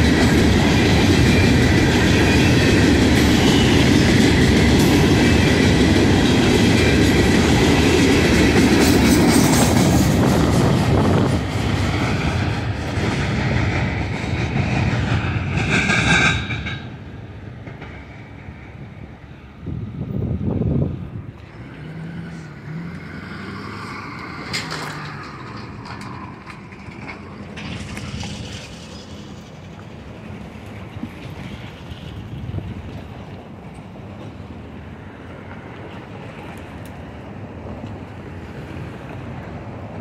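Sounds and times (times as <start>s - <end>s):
train wheels clickety-clack: 0.0s - 19.2s, 23.7s - 34.4s
low train rumble: 0.0s - 40.0s
high-pitched squeal: 22.0s - 30.1s.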